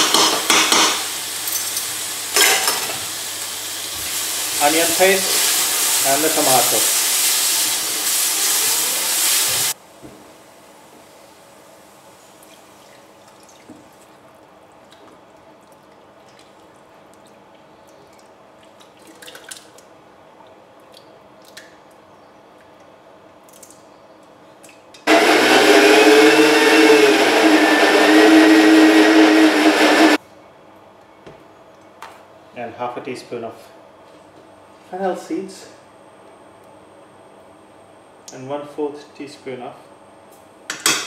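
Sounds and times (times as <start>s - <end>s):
blender grinding paste: 25.1s - 30.2s.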